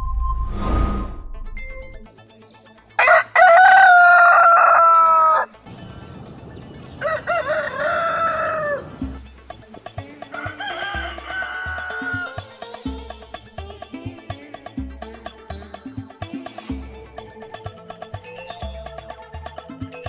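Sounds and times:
rooster crowing: 3.0s - 5.5s, 7.0s - 9.2s, 10.2s - 12.9s
music with steady beat: 9.0s - 20.0s.

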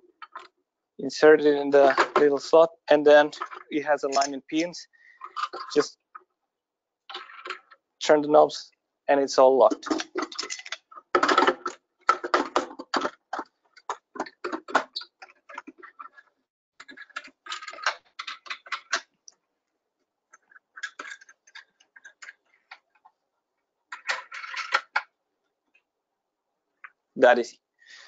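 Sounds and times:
clicks and knocks of locking legs: 9.8s - 19.2s.

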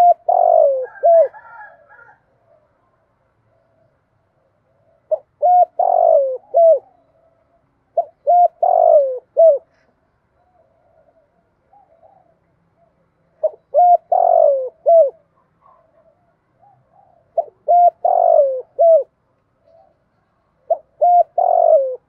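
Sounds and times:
dove cooing: 0.0s - 22.0s.

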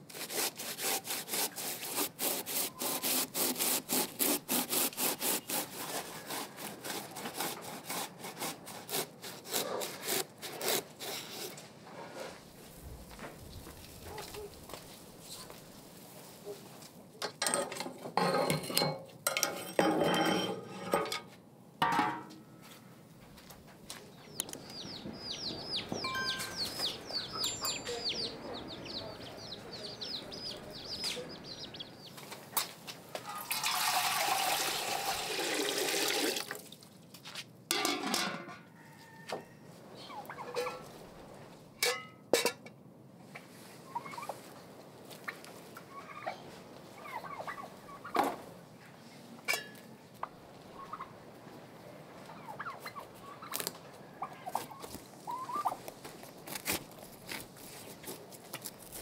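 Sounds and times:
poultry calling: 24.1s - 32.3s, 52.3s - 55.8s
turkeys gobbling: 40.0s - 40.9s, 43.9s - 44.4s, 45.2s - 46.4s, 47.0s - 48.2s, 50.2s - 51.1s, 52.2s - 55.8s.

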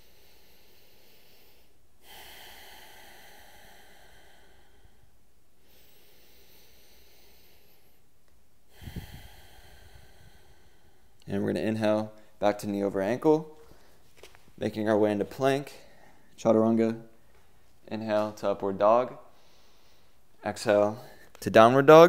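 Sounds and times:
man breathing deeply: 0.0s - 12.4s, 13.5s - 14.0s, 15.6s - 16.4s, 19.1s - 21.4s.

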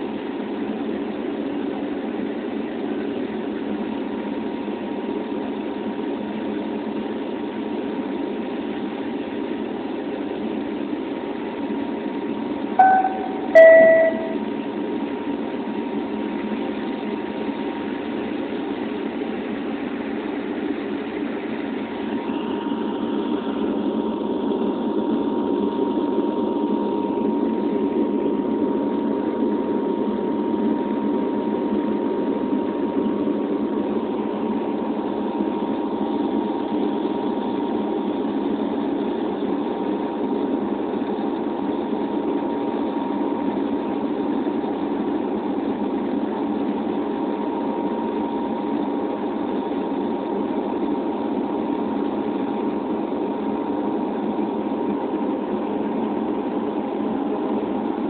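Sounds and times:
thin steady whine: 12.6s - 14.6s.

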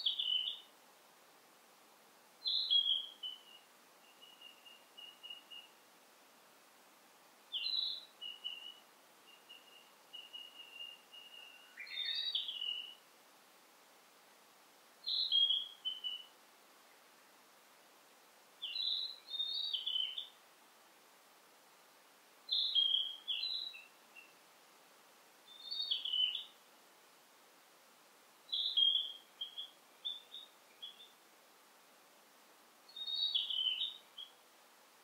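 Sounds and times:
songbird warbling: 0.0s - 0.7s, 2.4s - 5.8s, 7.5s - 13.0s, 15.0s - 16.3s, 18.6s - 20.4s, 22.5s - 24.4s, 25.5s - 26.6s, 28.5s - 31.2s, 32.9s - 34.4s
faint forest hiss: 0.0s - 35.0s.

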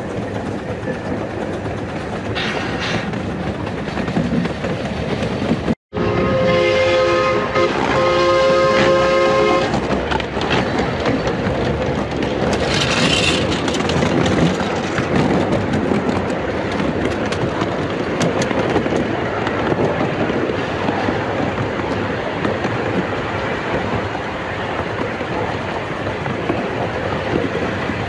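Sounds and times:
train wheels rattling on track: 0.0s - 28.0s
steam locomotive whistle: 5.9s - 9.8s.

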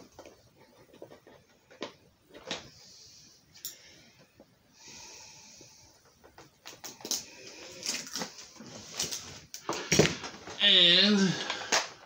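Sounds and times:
plastic rustling: 6.3s - 10.6s.

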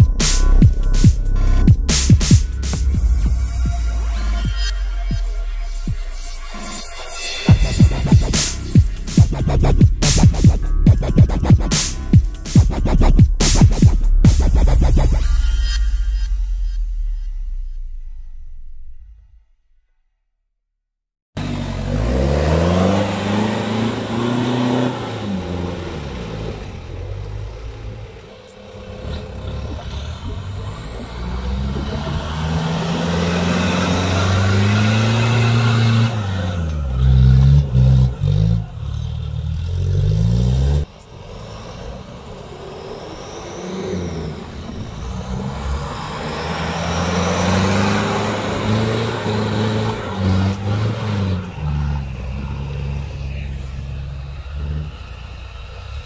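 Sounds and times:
off-road engine revving: 0.0s - 19.0s, 21.4s - 56.0s.

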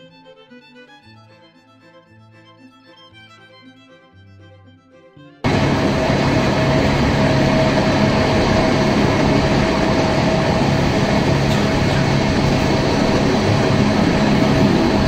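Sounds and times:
electric train running on track: 5.4s - 15.0s
thin steady whine: 5.4s - 15.0s.

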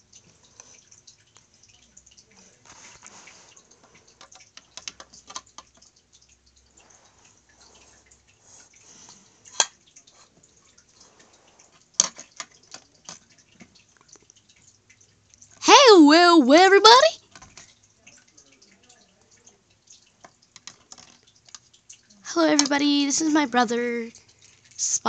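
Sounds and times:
plastic toy figures clicking: 22.5s - 22.8s.

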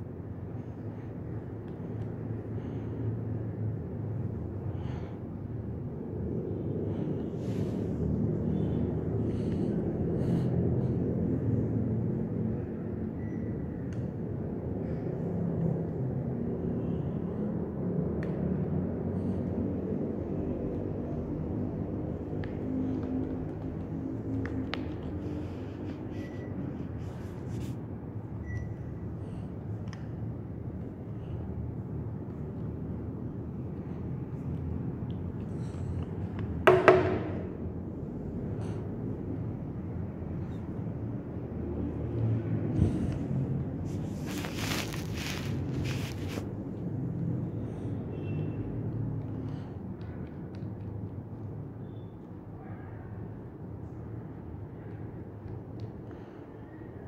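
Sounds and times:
air conditioner running: 0.0s - 51.5s
sharp ringing knocks: 36.7s - 37.6s.

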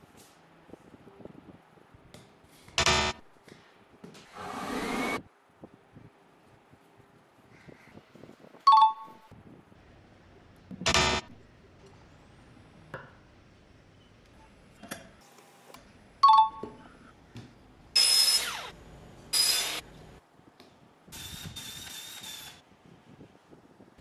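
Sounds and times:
miter saw cutting pipe: 18.0s - 18.8s, 19.4s - 19.8s
machine whirr: 18.0s - 19.8s.

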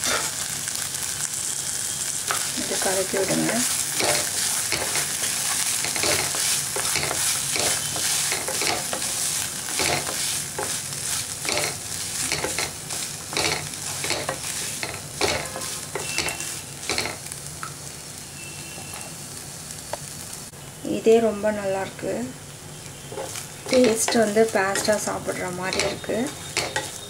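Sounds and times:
wooden spatula scraping a pan: 0.0s - 0.3s, 2.3s - 17.2s, 23.1s - 27.0s
frying sizzle: 0.0s - 27.0s.

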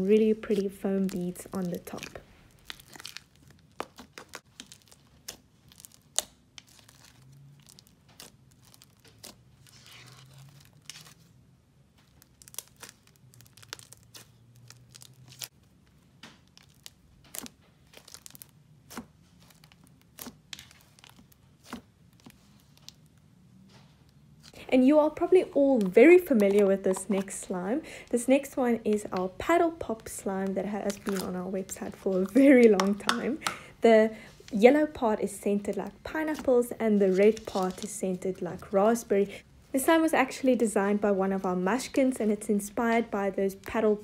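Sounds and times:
slime crackling and popping: 0.4s - 11.2s, 11.9s - 23.2s, 28.4s - 33.6s.

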